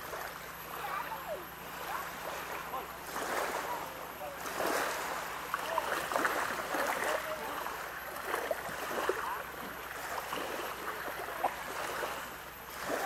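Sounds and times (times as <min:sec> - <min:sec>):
water splashing against boat: 0:00.0 - 0:13.0.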